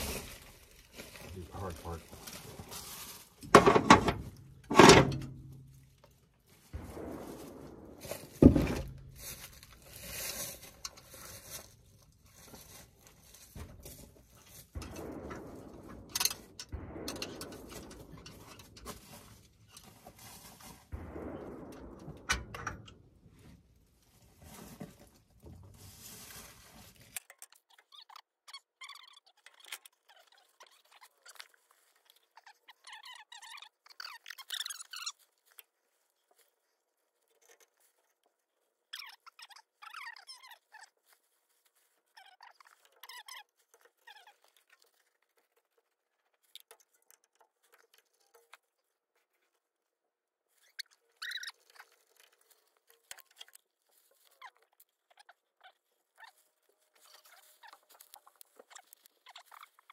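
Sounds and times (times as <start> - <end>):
metal rattling: 0.0 - 11.5, 12.6 - 23.4.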